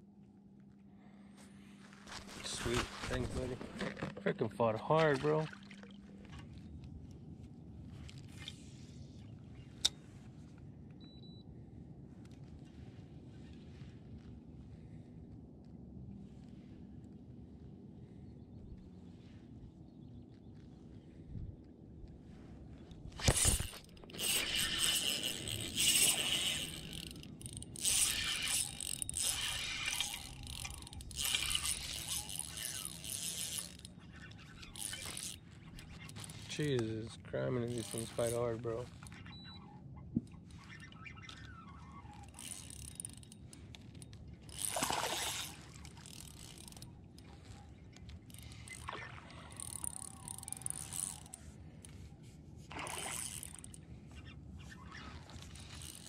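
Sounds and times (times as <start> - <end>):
water around kayak: 0.0 - 56.0
wind: 0.0 - 56.0
microphone handling rustling: 1.8 - 4.3
fishing reel reeling: 23.2 - 36.8, 37.5 - 39.7, 40.4 - 56.0.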